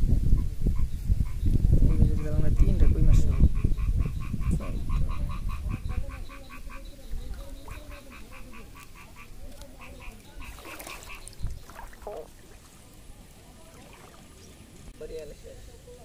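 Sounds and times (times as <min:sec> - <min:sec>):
rapid animal calls: 0:01.3 - 0:12.3.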